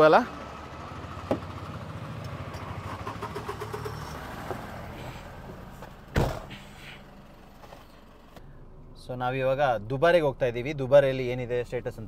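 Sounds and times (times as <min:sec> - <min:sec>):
vehicle engine idling: 0:00.0 - 0:12.0
loud thump: 0:06.1 - 0:06.6.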